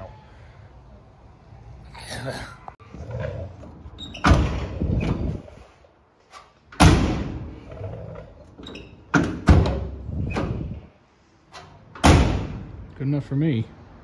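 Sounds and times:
car door slamming shut: 0:06.8 - 0:07.4, 0:12.0 - 0:12.6.

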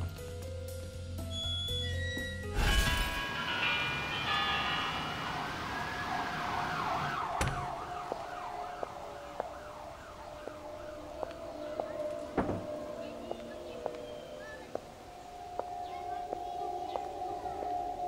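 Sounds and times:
emergency siren wailing: 0:03.3 - 0:18.0
footsteps clicking: 0:10.4 - 0:14.9.

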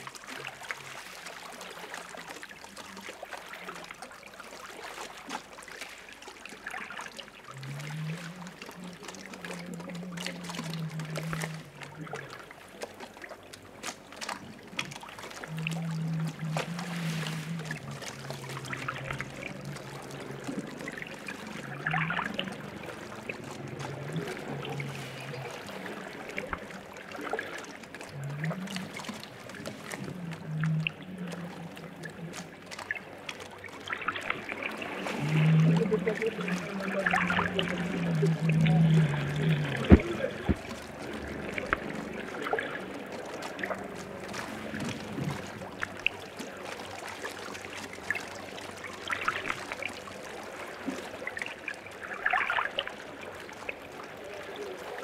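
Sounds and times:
small splashes and drips: 0:00.0 - 0:55.0
water lapping against boat hull: 0:00.0 - 0:55.0
low steady hum: 0:07.5 - 0:50.9.

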